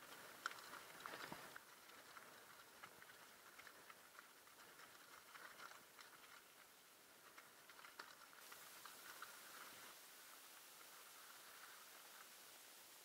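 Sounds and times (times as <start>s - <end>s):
sharp clicks from stones: 0.0s - 9.9s
bike rolling over stony track: 0.0s - 12.4s
hiss: 8.4s - 13.0s.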